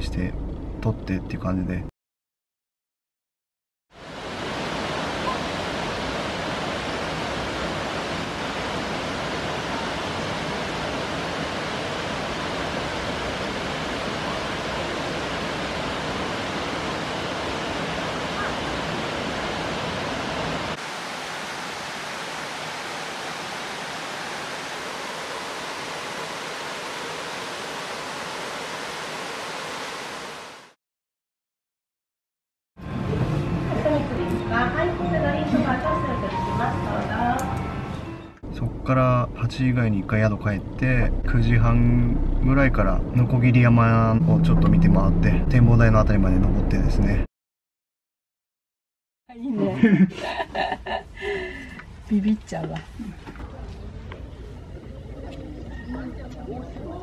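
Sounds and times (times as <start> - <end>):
waterfall rushing: 4.0 - 30.8.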